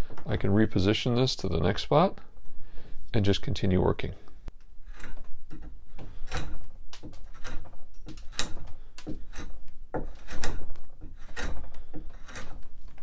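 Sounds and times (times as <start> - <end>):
drawknife scraping wood: 4.8 - 13.0.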